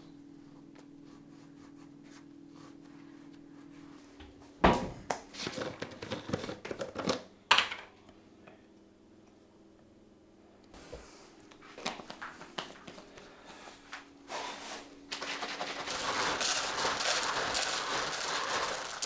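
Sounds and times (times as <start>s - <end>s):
packaging and containers clattering: 5.4s - 7.3s, 15.1s - 19.0s.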